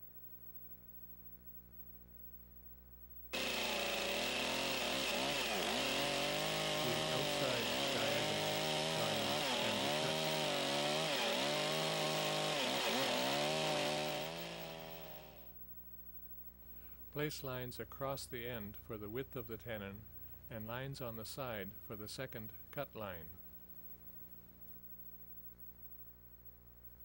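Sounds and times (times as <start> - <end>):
chainsaw cutting log: 3.4 - 15.5.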